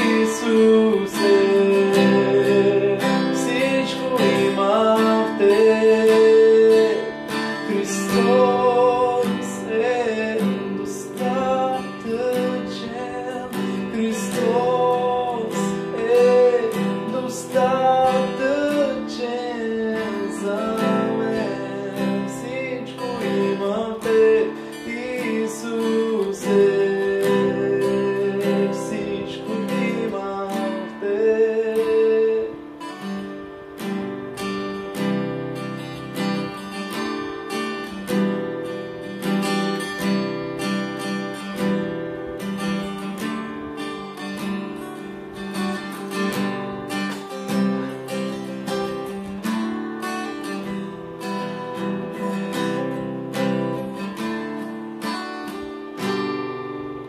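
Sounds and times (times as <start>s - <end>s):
man singing: 0.0s - 33.1s
strummed acoustic guitar: 0.0s - 57.0s.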